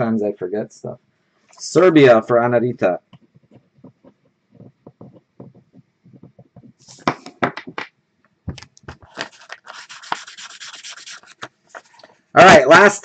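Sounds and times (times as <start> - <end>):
marker scribbling on paper: 9.3 - 11.5.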